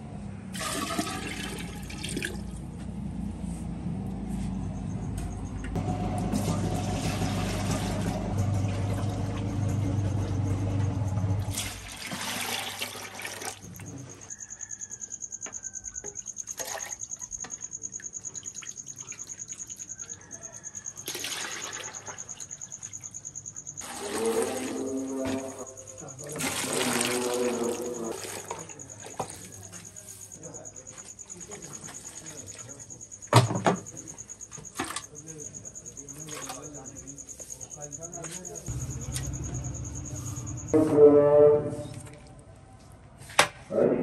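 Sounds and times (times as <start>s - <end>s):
liquid splashing and glugging: 0.6s - 2.5s, 11.4s - 14.1s, 23.8s - 29.4s
low hum: 2.5s - 11.6s, 38.7s - 42.8s.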